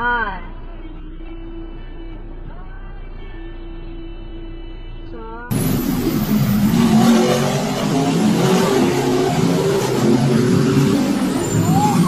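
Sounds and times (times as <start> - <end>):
race car engines revving: 5.5 - 12.0.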